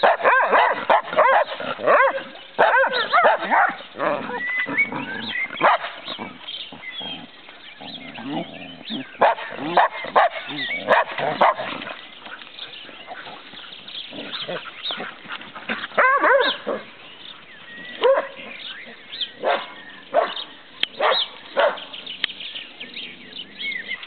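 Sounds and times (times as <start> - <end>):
dogs barking in sharp bursts: 0.0 - 6.5, 8.8 - 17.0, 18.0 - 18.6, 19.4 - 22.0.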